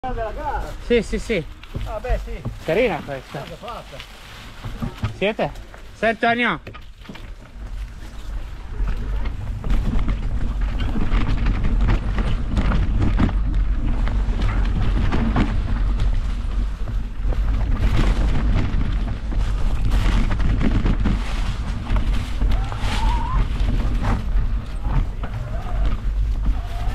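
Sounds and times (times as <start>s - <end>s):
tyres on dirt and dry leaves: 0.0s - 26.9s
bike knocking and rattling: 0.1s - 26.9s
wind rumbling on microphone: 6.6s - 26.9s.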